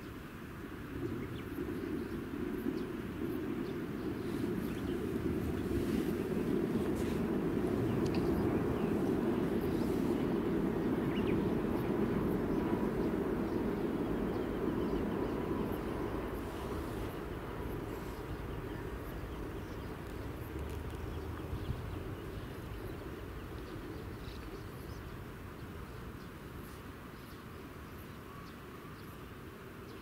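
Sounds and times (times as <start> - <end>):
low outdoor rumble: 0.6 - 28.2.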